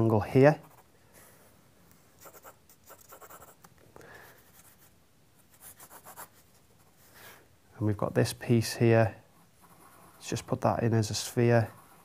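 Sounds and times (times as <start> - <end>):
pencil sketching on paper: 9.5 - 10.4, 11.6 - 12.0.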